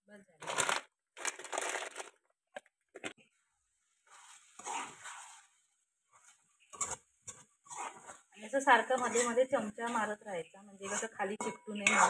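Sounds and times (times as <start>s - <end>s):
metal spoon tapping and scraping: 6.2s - 10.2s, 10.8s - 12.0s.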